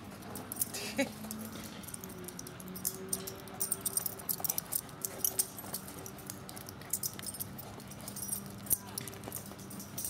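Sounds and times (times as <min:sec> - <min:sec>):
dog collar tags jingling: 0:00.1 - 0:10.0.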